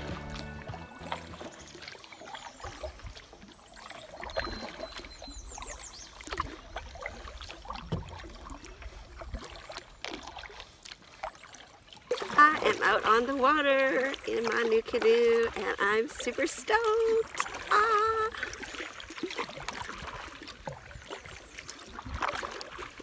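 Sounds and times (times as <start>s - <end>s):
paddle strokes in water: 0.0s - 23.0s
clicks and knocks on hull: 7.7s - 8.5s.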